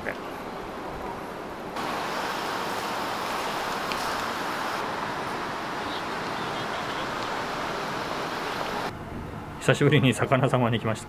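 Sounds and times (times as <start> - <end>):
city street traffic: 0.0 - 9.8.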